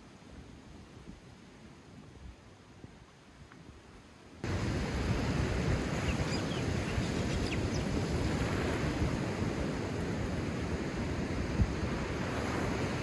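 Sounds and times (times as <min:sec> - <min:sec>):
surf breaking on rocky shore: 0:04.4 - 0:13.0
wind on microphone: 0:04.4 - 0:13.0.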